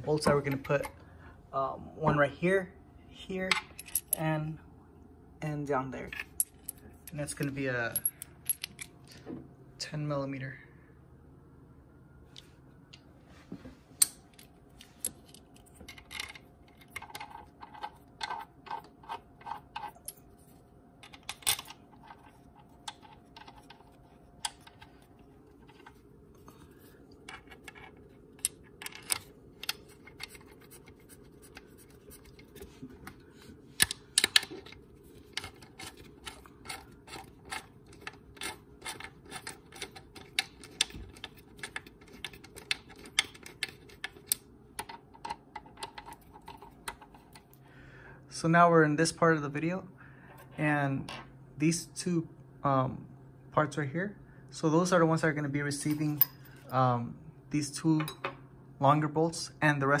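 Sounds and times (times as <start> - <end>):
bolts scraping and tapping: 0.0 - 1.0, 14.0 - 20.2, 21.0 - 26.5, 27.2 - 33.2, 33.8 - 47.6.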